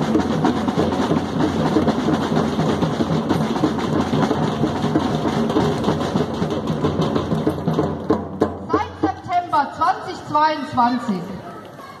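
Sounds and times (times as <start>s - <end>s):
bass drum: 0.0s - 9.1s
drums beating: 0.0s - 10.4s.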